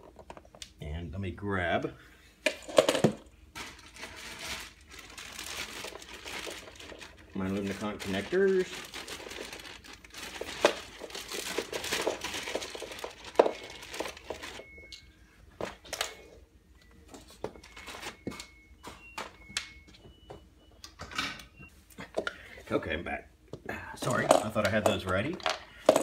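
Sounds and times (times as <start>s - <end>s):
rustling and crinkling handling: 2.6s - 20.5s.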